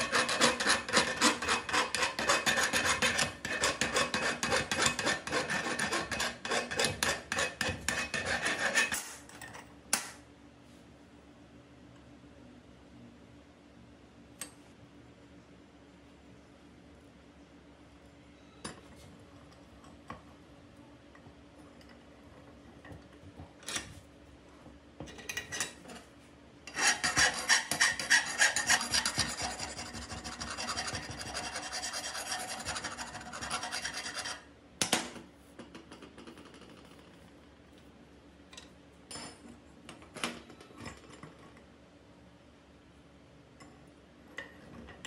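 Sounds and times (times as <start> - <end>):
hand tool scraping steel: 0.0 - 9.2, 26.7 - 34.4.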